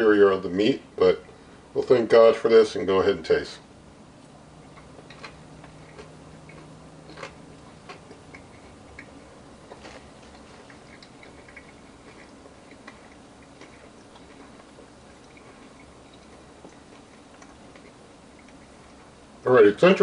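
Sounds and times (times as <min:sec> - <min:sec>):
person chewing meat: 0:04.2 - 0:19.4.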